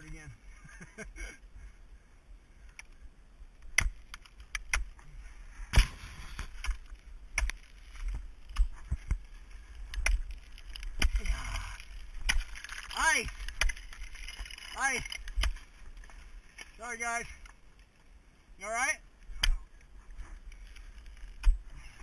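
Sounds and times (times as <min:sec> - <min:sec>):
ice axe striking ice: 0:03.7 - 0:05.0, 0:05.7 - 0:09.2, 0:09.9 - 0:16.8.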